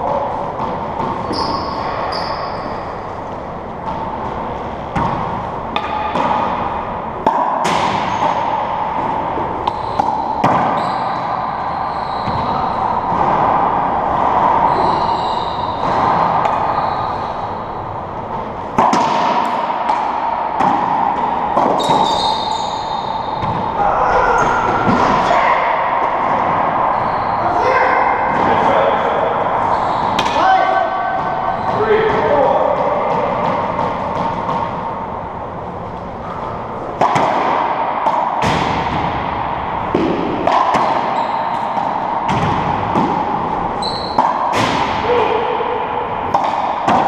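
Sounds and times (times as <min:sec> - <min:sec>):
steady background hum: 0:00.0 - 0:47.0
racquetball smacks: 0:04.9 - 0:10.8, 0:18.7 - 0:22.2, 0:36.3 - 0:45.1, 0:46.3 - 0:47.0.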